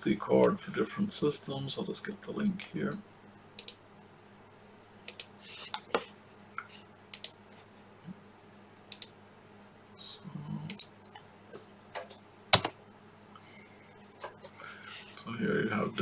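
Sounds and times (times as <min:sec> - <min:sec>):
computer mouse clicks: 0:03.6 - 0:03.8, 0:05.1 - 0:05.8, 0:07.1 - 0:07.4, 0:08.9 - 0:09.2, 0:10.7 - 0:11.2.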